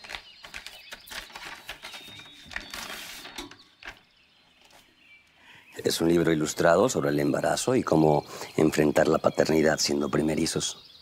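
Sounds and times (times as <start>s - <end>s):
paper rustling: 0.0s - 4.0s.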